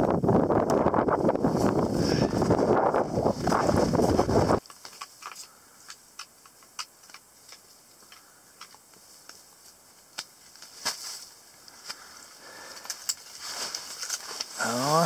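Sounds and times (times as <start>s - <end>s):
wind buffeting microphone: 0.0s - 4.6s.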